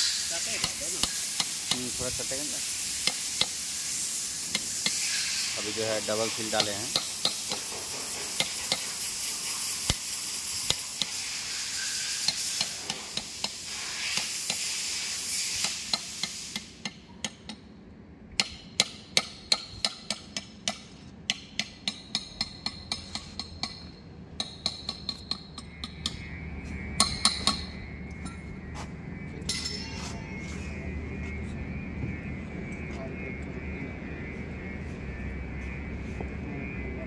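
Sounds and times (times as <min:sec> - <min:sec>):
steady hiss: 0:00.0 - 0:17.0
hammer tapping metal: 0:00.6 - 0:02.0, 0:06.6 - 0:09.0, 0:12.2 - 0:13.6, 0:18.4 - 0:26.2, 0:27.0 - 0:28.4, 0:29.5 - 0:30.2.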